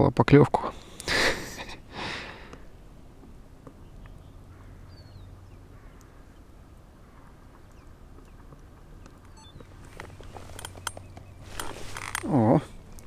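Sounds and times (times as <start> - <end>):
faint distant bird calls: 1.8 - 13.0
high falling bird chirp: 7.1 - 11.6.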